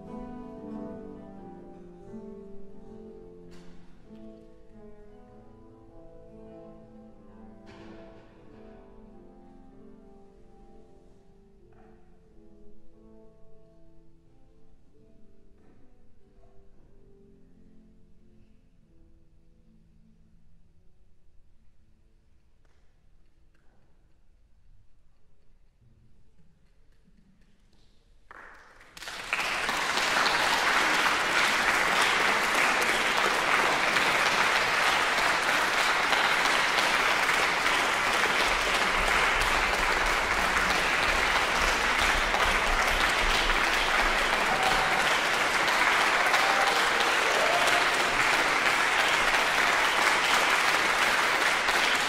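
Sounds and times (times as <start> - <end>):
audience applauding: 28.3 - 52.0.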